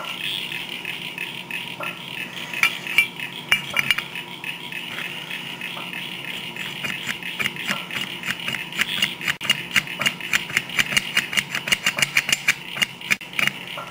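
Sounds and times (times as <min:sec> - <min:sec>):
clutch fork clicking and rattling: 0:06.6 - 0:13.5.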